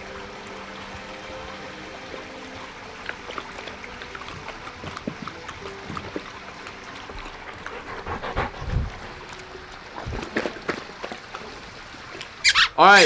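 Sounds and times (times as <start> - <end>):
water trickling and lapping: 0.0 - 13.0
dogs drinking with small splashes: 0.2 - 12.4.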